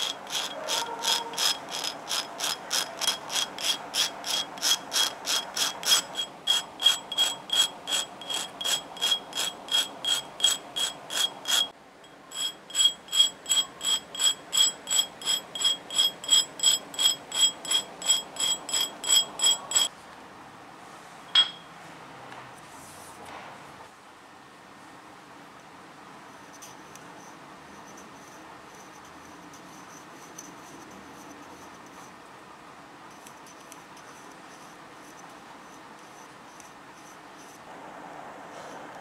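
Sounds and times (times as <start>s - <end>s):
metal rasping on grinding wheel: 0.0s - 19.9s.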